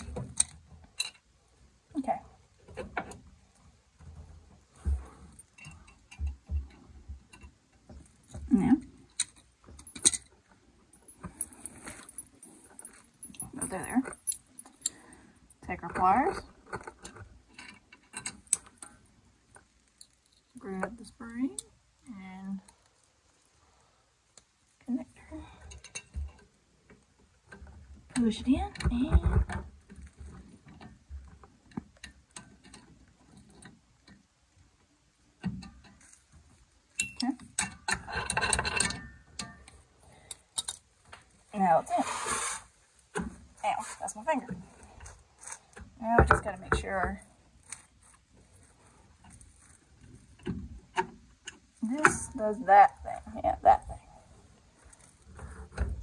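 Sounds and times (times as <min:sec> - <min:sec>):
metal clicks and clinks: 0:09.1 - 0:15.1, 0:36.9 - 0:40.9.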